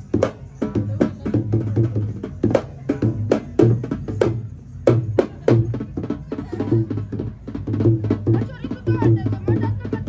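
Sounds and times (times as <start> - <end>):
two-headed drum rhythm: 0.0 - 10.0.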